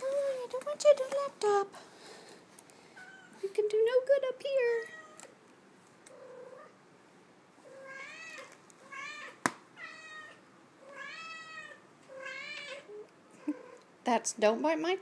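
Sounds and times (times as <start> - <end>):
cat meowing: 3.0 - 3.4, 4.8 - 5.3, 7.7 - 13.8.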